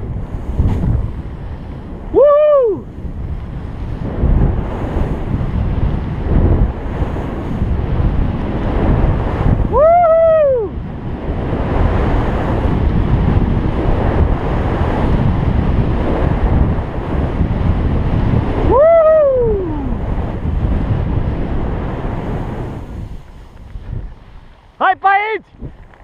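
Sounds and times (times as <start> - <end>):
snowboard sliding through snow: 0.0 - 9.7, 10.8 - 18.7, 19.5 - 24.9
wind buffeting microphone: 0.0 - 26.0
person whooping: 2.1 - 2.9, 9.7 - 10.8, 18.6 - 20.0.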